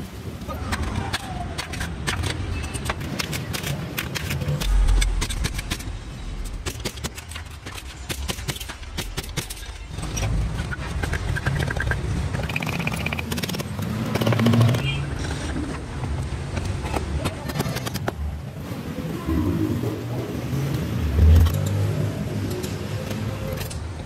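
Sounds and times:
sharp metallic clicks: 1.6s - 14.9s
low rumble: 4.5s - 7.7s.

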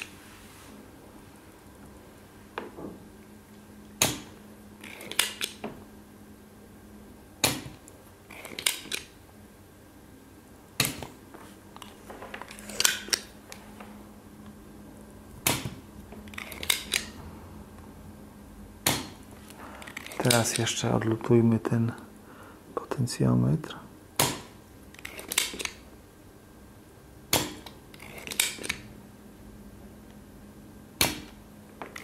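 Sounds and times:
desoldering pump snapping: 3.8s - 5.8s, 7.4s - 9.1s, 18.8s - 20.8s, 24.2s - 25.8s.

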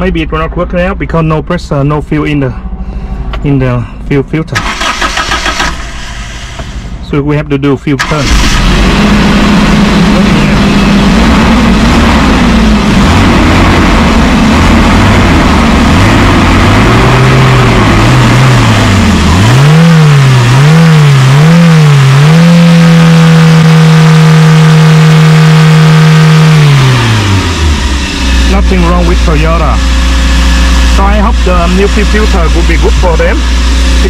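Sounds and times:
engine revving: 4.5s - 7.1s, 8.0s - 34.0s
petrol engine running: 8.0s - 34.0s.

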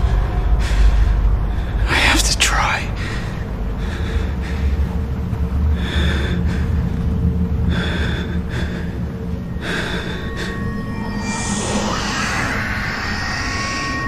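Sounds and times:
man breathing heavily: 0.0s - 2.0s, 2.9s - 14.0s
low rumbling drone: 0.0s - 14.0s.

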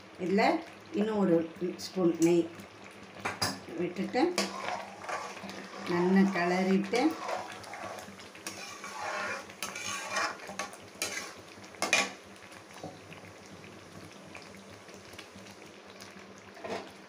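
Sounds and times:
thick mixture simmering: 0.0s - 17.0s
metal ladle scraping a pan: 4.3s - 12.2s.

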